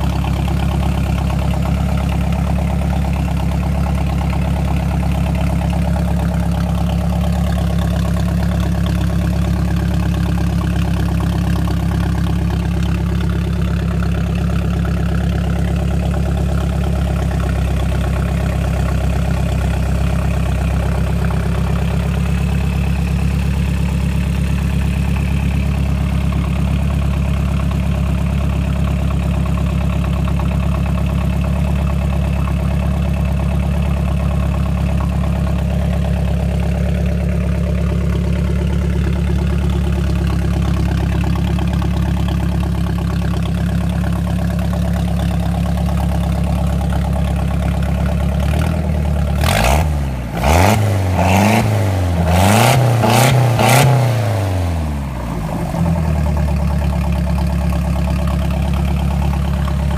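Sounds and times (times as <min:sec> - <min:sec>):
boat engine idling: 0:00.0 - 0:49.5, 0:55.0 - 0:59.9.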